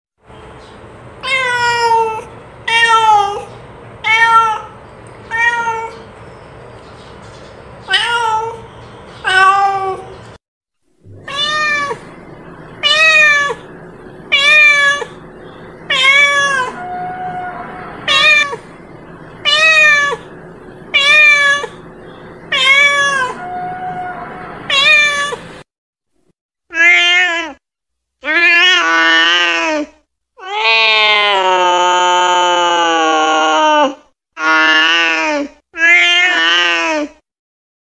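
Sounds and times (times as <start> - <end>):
cat meowing: 1.2 - 6.1, 7.9 - 10.1, 11.1 - 15.2, 15.8 - 18.7, 19.4 - 20.3, 20.9 - 21.8, 22.5 - 25.6, 26.7 - 27.6, 30.4 - 31.5, 35.8 - 37.1.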